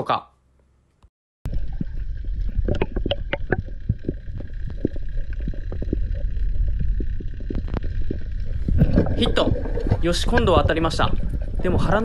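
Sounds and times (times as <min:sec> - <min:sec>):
sharp underwater clicks and crackles: 0:01.5 - 0:12.0
underwater rush of water: 0:01.5 - 0:12.0.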